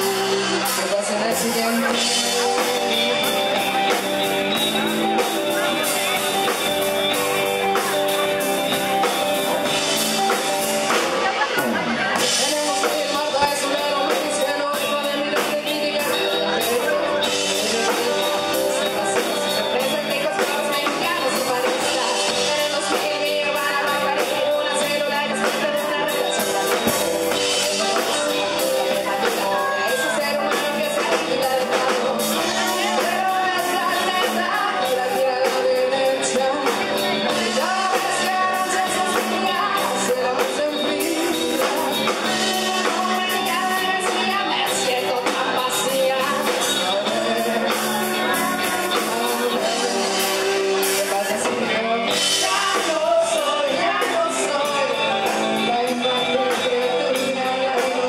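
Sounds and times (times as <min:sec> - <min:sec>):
drums: 0:00.0 - 0:58.0
electric guitars: 0:00.0 - 0:58.0
woman singing into microphone: 0:00.0 - 0:58.0.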